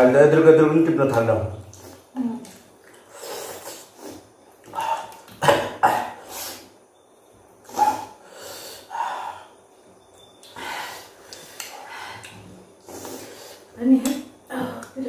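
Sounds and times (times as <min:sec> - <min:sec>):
person coughing: 0:05.4 - 0:06.2.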